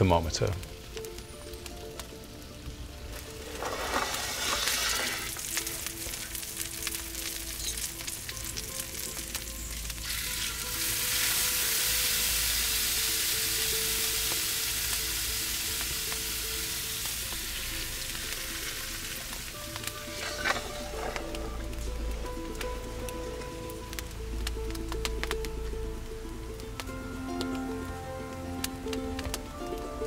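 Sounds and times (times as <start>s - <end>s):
steaks sizzling in a skillet: 0.7s - 25.6s.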